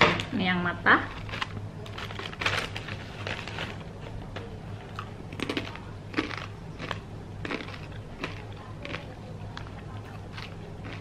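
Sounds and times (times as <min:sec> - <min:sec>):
snack bag crinkling: 0:01.1 - 0:03.9, 0:05.3 - 0:11.0
crunchy chip bites: 0:05.3 - 0:11.0.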